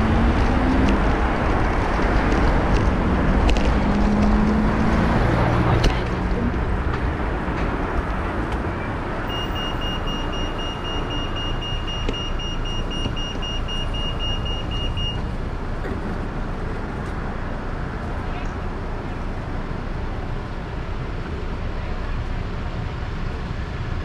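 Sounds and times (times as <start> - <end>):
road traffic: 0.0 - 24.0
short high-pitched beeps: 9.3 - 15.2.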